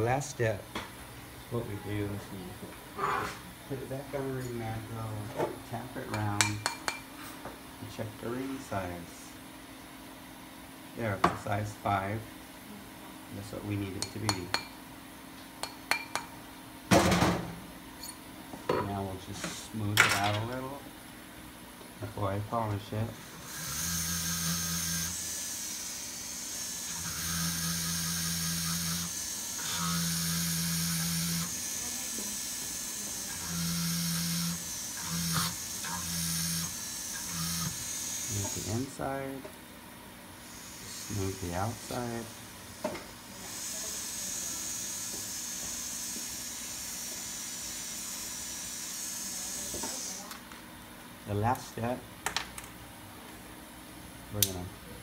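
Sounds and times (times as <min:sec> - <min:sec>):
rotary tool grinding: 0:23.4 - 0:38.8.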